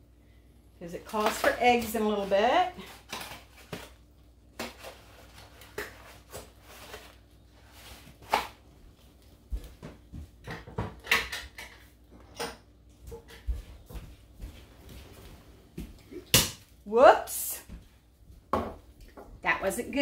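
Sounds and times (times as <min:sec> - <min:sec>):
kitchen items clattering: 0:00.9 - 0:04.0, 0:10.4 - 0:13.9.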